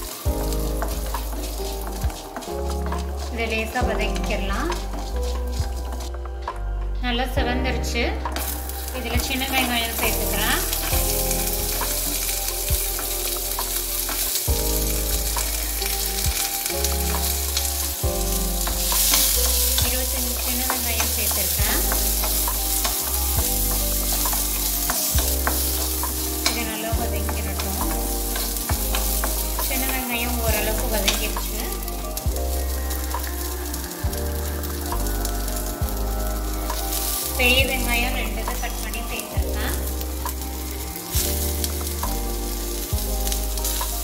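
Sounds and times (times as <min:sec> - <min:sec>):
wooden spatula scraping pan: 0:00.0 - 0:06.3, 0:08.3 - 0:44.0
onions sizzling in hot oil: 0:00.0 - 0:06.7, 0:08.1 - 0:44.0.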